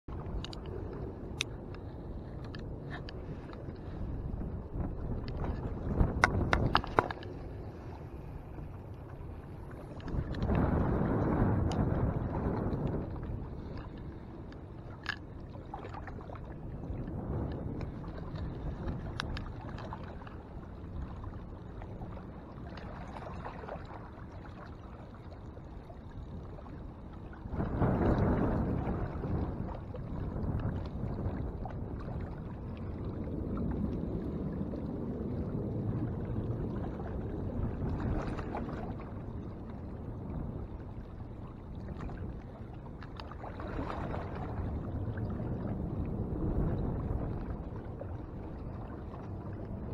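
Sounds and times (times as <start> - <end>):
water lapping at rocks: 0.1 - 49.9
wind on microphone: 0.1 - 49.9
faint clicks: 0.2 - 3.9.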